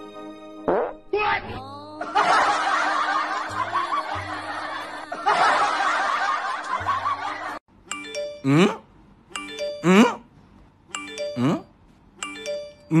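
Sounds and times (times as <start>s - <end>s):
background music: 0.0s - 8.8s
canned laughter: 2.0s - 7.6s
doorbell-like chime: 7.9s - 8.7s, 9.4s - 10.0s, 10.9s - 13.0s.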